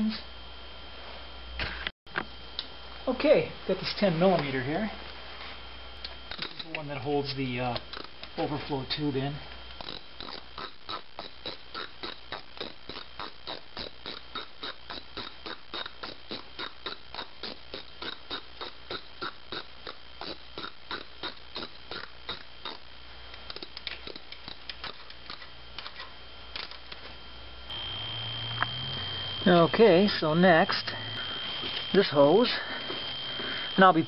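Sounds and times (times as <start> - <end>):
socket ratchet clicking: 9.8 - 22.8.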